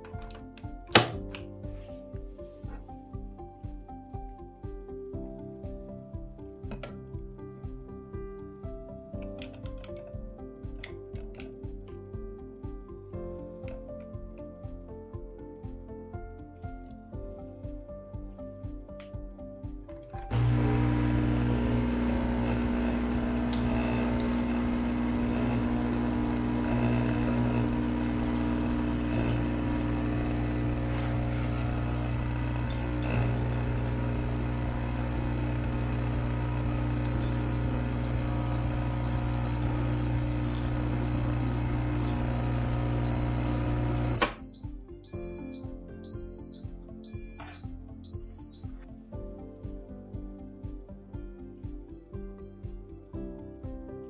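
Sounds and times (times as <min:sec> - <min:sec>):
machine pump buzzing hum: 0:20.3 - 0:44.6
thermometer alarm beeping: 0:37.0 - 0:48.8.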